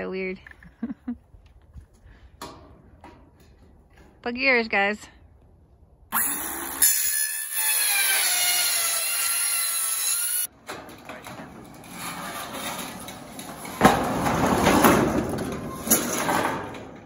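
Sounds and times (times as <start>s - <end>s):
circular saw cutting metal: 6.1s - 10.5s
sheet metal scraping and rattling: 7.0s - 17.0s.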